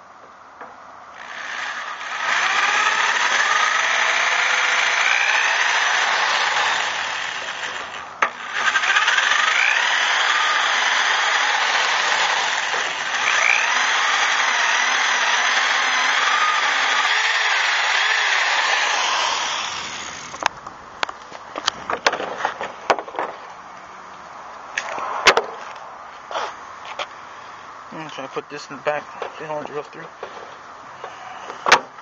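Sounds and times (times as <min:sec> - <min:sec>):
cordless drill grinding into metal: 0:01.2 - 0:20.5
whine of bit cutting metal: 0:01.2 - 0:20.5.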